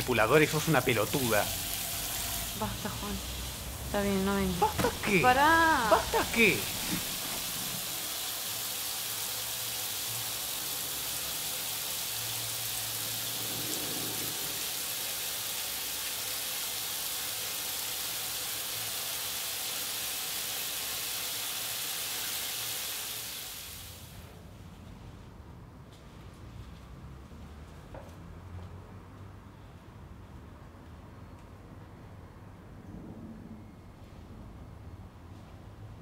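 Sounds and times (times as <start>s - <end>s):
shower water spraying: 0.0s - 24.1s.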